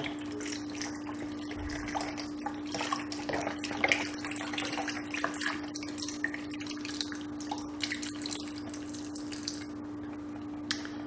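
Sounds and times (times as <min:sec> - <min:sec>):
broth pouring and splashing: 0:00.0 - 0:09.9
steady low hum: 0:00.0 - 0:11.0.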